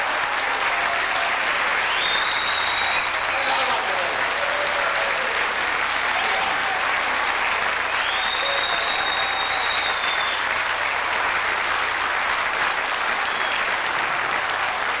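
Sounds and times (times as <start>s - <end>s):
audience applauding: 0.0s - 15.0s
long whistle from crowd: 1.8s - 3.7s, 8.0s - 10.6s, 13.2s - 13.7s.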